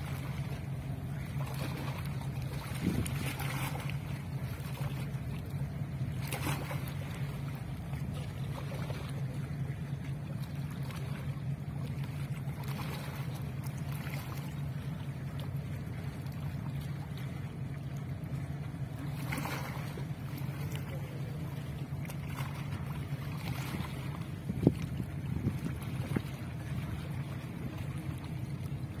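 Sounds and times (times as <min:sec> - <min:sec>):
boat engine droning: 0:00.0 - 0:29.0
water noise: 0:00.0 - 0:29.0
wind: 0:00.0 - 0:29.0.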